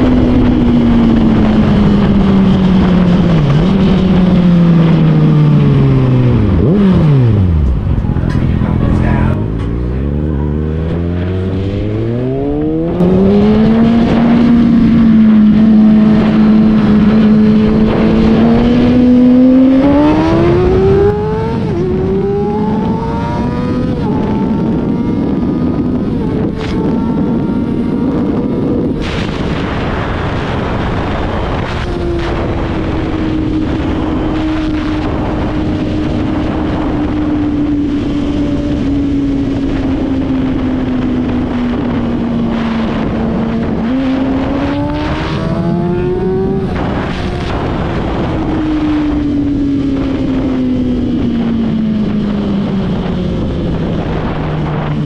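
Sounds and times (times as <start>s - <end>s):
motorcycle engine accelerating: 0.0s - 55.0s
wind rushing: 0.0s - 55.0s.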